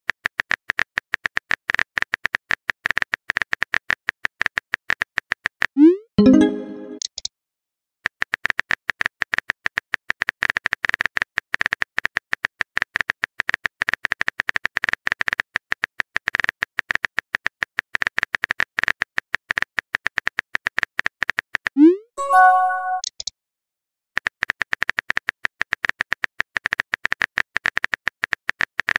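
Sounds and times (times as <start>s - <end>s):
chime tones: 6.2s - 7.0s, 22.2s - 23.1s.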